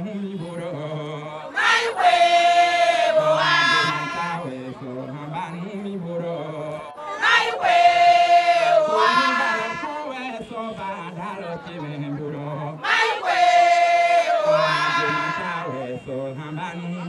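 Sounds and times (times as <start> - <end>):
lower voices chanting: 0.8 - 5.2, 6.4 - 10.2, 11.3 - 16.4
loud high call: 1.5 - 4.4, 7.0 - 10.0, 12.8 - 15.9.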